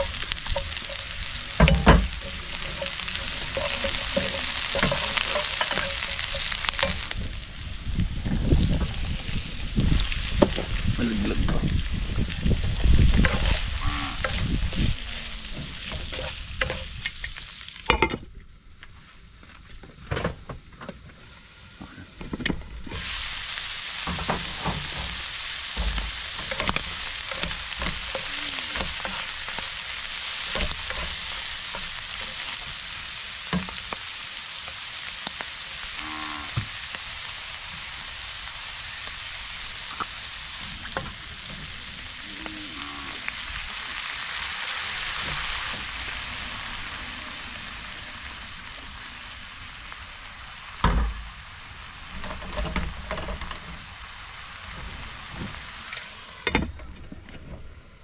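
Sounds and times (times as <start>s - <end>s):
knocks and clatter: 0.0s - 7.2s
food sizzling in a pan: 0.0s - 18.1s, 21.1s - 56.5s.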